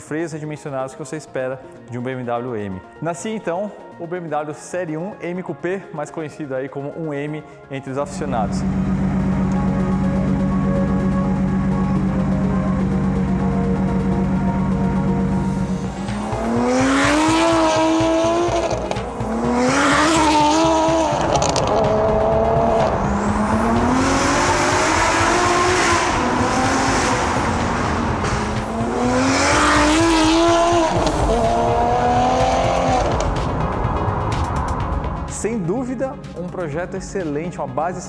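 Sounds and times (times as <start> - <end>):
car engine accelerating hard: 8.1 - 34.8.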